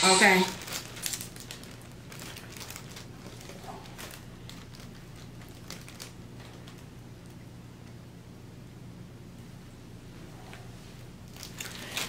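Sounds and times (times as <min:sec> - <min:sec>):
steady low hum: 0:00.0 - 0:12.0
foil balloons crinkling: 0:00.1 - 0:07.0, 0:11.2 - 0:12.0.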